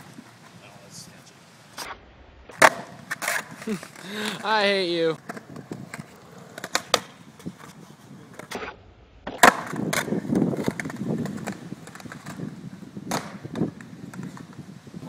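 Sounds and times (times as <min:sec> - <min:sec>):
skateboard wheels on concrete: 0:00.0 - 0:15.0
skateboard clacking on ground: 0:02.5 - 0:08.6, 0:09.3 - 0:14.6.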